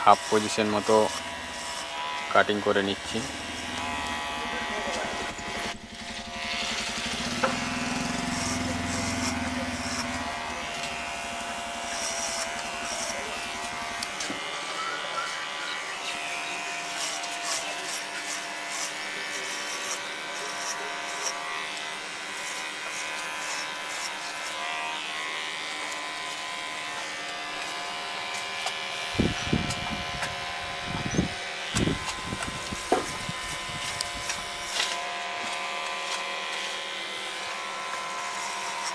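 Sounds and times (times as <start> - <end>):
electric hair clipper buzzing: 0.0 - 38.9
clipper blades rasping through hair: 3.2 - 6.5, 8.4 - 11.2, 11.8 - 14.7, 16.8 - 38.9.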